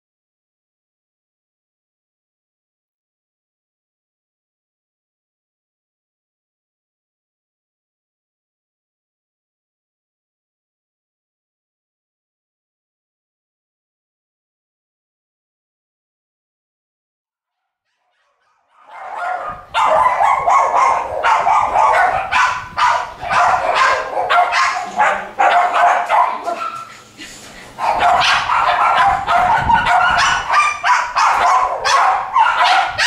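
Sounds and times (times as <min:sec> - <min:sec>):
puppies yapping and barking: 0:18.1 - 0:33.0.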